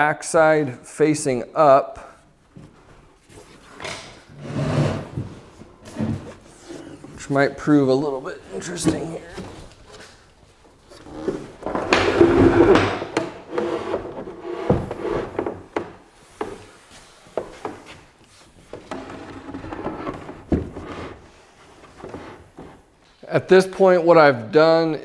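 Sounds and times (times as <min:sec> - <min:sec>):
wood scraping across workbench: 0:03.9 - 0:06.9, 0:11.0 - 0:16.6, 0:18.7 - 0:22.8.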